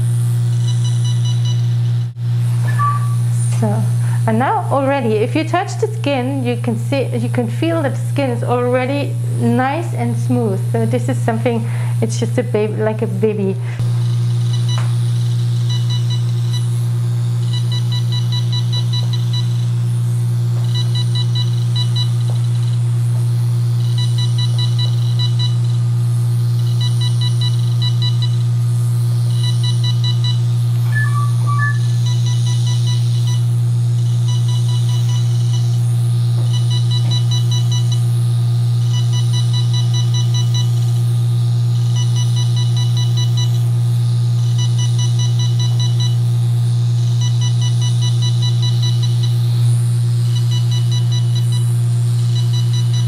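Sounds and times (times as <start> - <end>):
loud steady low hum: 0.0 - 53.0
pair of different beeps: 2.7 - 3.2, 29.4 - 33.4
laser handpiece beeping rapidly: 29.3 - 33.4.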